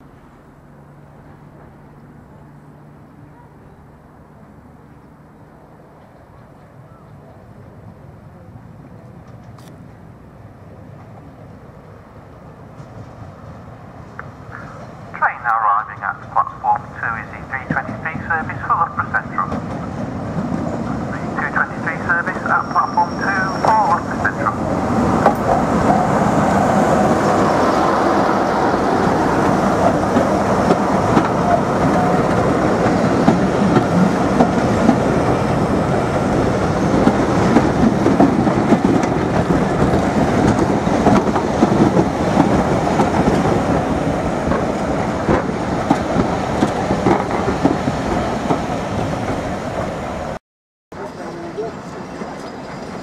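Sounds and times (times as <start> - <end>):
locomotive engine passing: 0.0 - 50.4, 51.0 - 53.0
train coaches rumbling: 0.0 - 53.0
wheels clicking over rail joints: 37.0 - 43.8.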